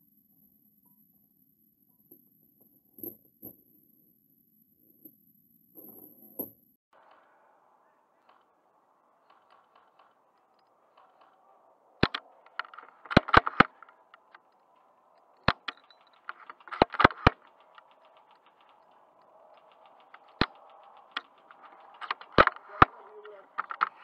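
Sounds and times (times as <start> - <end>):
light clicks: 9.2 - 24.0
airsoft guns firing: 12.0 - 14.3.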